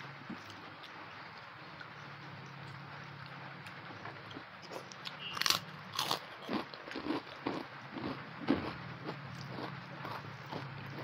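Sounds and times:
person chewing crunchy food: 3.9s - 11.0s.

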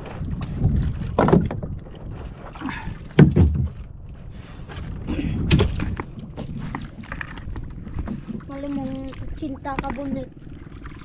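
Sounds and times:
wind: 0.0s - 11.0s
fishing gear knocking in wooden boat: 1.0s - 1.8s, 3.1s - 3.9s
rushing water: 8.0s - 11.0s.

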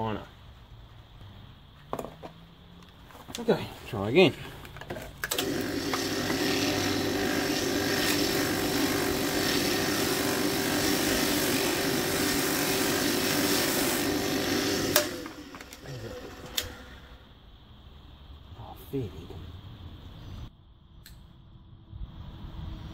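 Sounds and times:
electric motor humming: 5.3s - 17.1s.

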